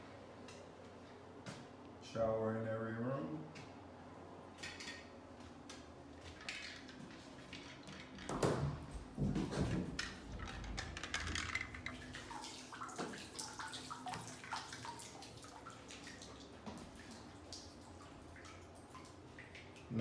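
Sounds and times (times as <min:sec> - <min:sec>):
water splashing and dripping: 0:09.2 - 0:20.0.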